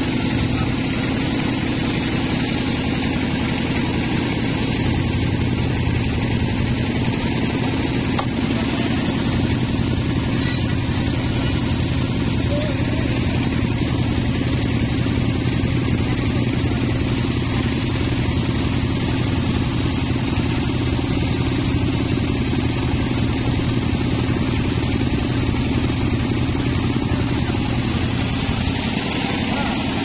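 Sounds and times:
engine running steadily: 0:00.0 - 0:30.0.

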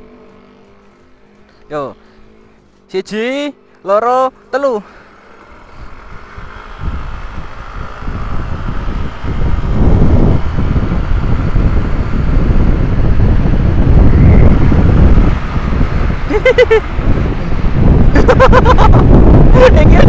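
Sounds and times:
scooter engine accelerating: 0:00.0 - 0:20.0
wind noise on microphone: 0:05.6 - 0:20.0.

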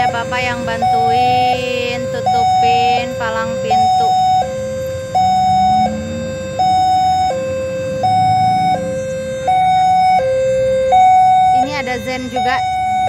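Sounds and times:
level crossing two-tone siren: 0:00.0 - 0:13.0.

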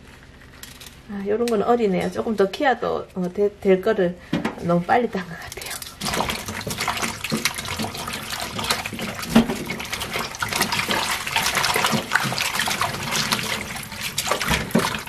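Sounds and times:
water splashing in a steel bowl: 0:05.6 - 0:15.0
tap water running into bowl: 0:05.7 - 0:15.0.

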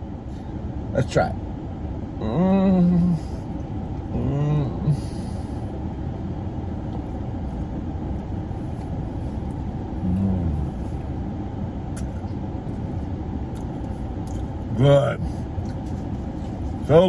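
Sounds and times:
car air conditioning blowing: 0:00.0 - 0:17.0
person humming while eating: 0:02.2 - 0:05.3, 0:10.0 - 0:11.0.

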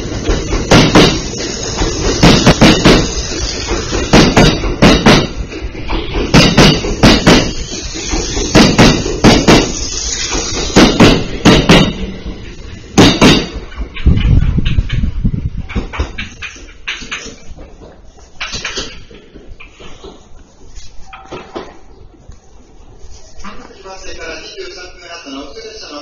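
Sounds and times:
train wheels clacking over joints: 0:00.0 - 0:20.6
train low rumble: 0:00.0 - 0:21.2.

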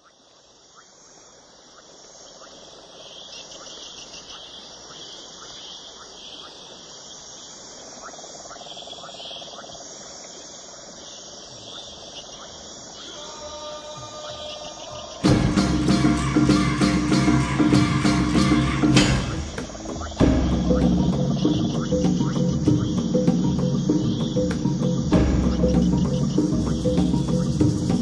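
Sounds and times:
insects chirping: 0:00.0 - 0:28.0.

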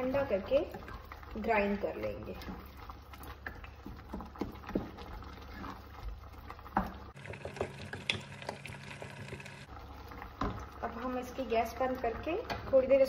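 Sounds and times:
spatula scraping pot: 0:00.0 - 0:07.6
sauce bubbling with wet plops: 0:00.0 - 0:12.8.

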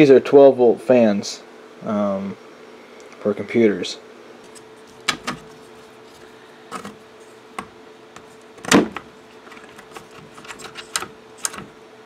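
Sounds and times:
faint steady hum: 0:00.0 - 0:12.0
plastic clicks and knocks: 0:05.0 - 0:05.5.

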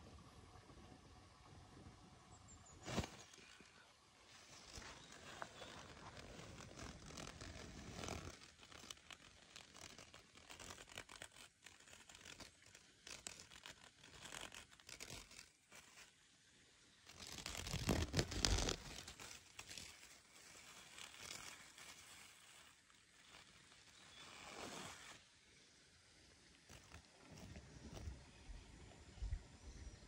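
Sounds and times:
plastic bag crinkling: 0:04.5 - 0:16.1, 0:17.1 - 0:25.2.

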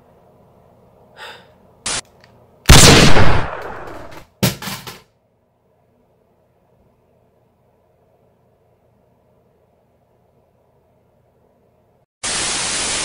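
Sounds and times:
short gunshot burst: 0:02.7 - 0:04.1
loud gunshot: 0:02.7 - 0:04.2.

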